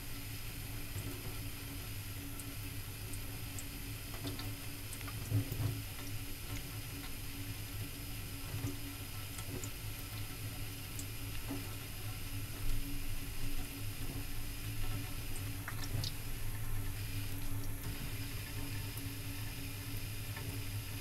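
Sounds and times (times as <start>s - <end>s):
light splashes and clicks: 3.1s - 7.2s, 8.5s - 12.8s, 13.6s - 19.1s
tap water trickling into metal sink: 13.6s - 19.1s.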